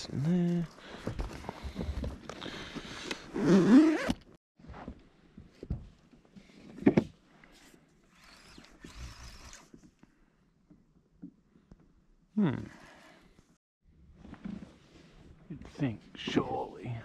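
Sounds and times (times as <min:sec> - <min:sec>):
zipper being drawn: 0:03.4 - 0:04.3.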